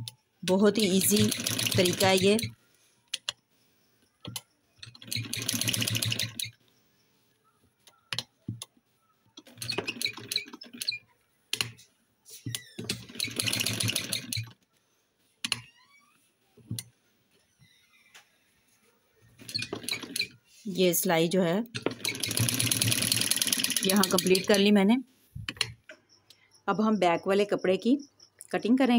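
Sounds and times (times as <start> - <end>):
sewing machine clicks: 0.5 - 2.5, 4.2 - 6.6, 9.4 - 11.8, 12.8 - 14.6, 19.4 - 20.3, 21.7 - 24.7
sewing machine stitching: 0.5 - 2.6, 4.8 - 6.6, 9.4 - 11.0, 12.8 - 14.6, 19.4 - 20.4, 21.8 - 24.7.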